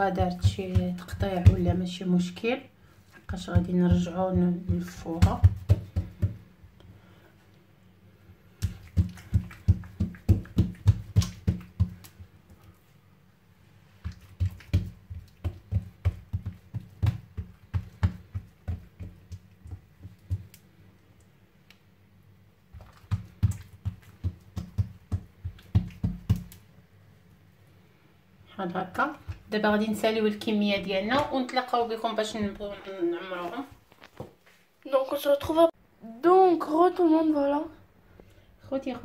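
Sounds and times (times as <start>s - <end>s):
hands patting dough on board: 0.0s - 2.0s, 3.2s - 6.5s, 8.5s - 12.7s, 14.0s - 20.8s, 22.7s - 26.7s, 29.0s - 32.6s.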